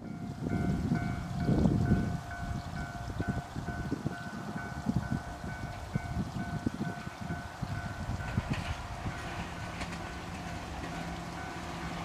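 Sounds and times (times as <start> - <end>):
distant level-crossing bell ringing: 0.0 - 12.0
wind buffeting microphone: 0.0 - 12.0.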